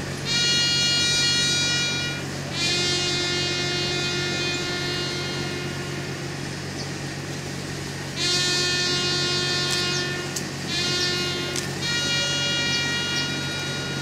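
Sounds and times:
low hum: 0.0s - 14.0s
trumpet playing long notes: 0.2s - 6.4s, 8.1s - 14.0s.

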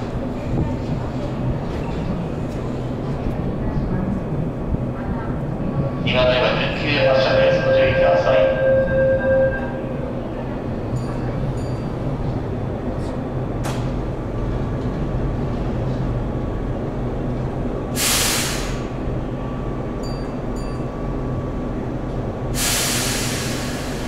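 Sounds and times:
train rumble and hum: 0.0s - 24.0s
air hisses: 18.0s - 18.9s, 22.6s - 24.0s.

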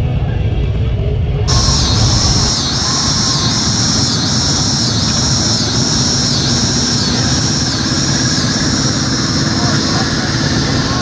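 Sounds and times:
motorcycle engines rumbling: 0.8s - 11.0s
pulsing high buzz: 1.5s - 11.0s.

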